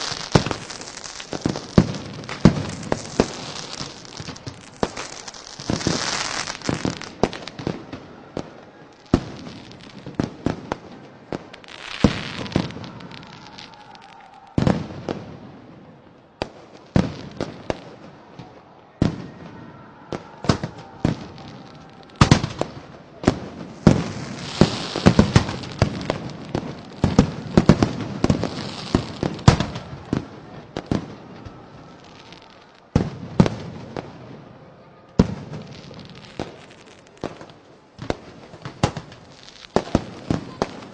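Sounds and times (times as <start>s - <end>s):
fireworks hissing: 0.0s - 15.4s, 20.1s - 30.3s
fireworks bangs and crackles: 0.0s - 40.9s.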